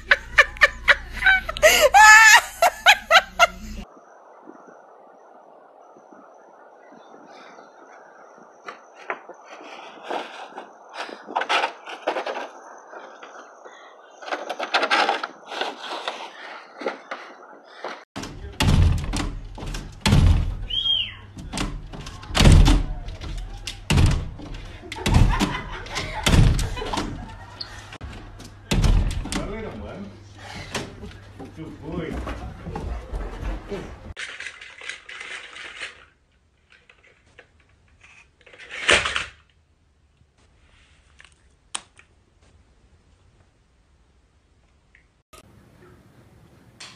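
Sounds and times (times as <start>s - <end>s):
dog thudding against glass door: 18.2s - 27.4s, 28.1s - 29.6s.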